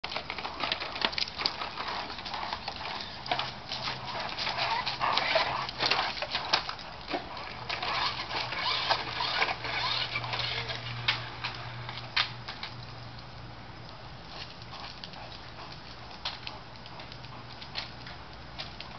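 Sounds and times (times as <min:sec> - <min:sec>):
low steady hum: 0:00.0 - 0:18.9
plastic toy car rattling on concrete: 0:00.1 - 0:11.6.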